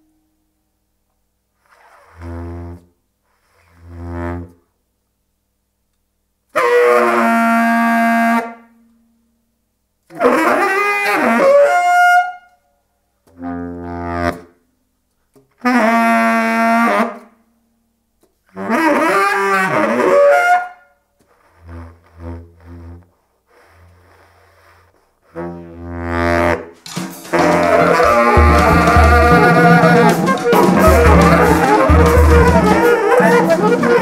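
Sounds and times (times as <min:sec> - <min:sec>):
saxophones improvising: 0:18.6 - 0:34.0.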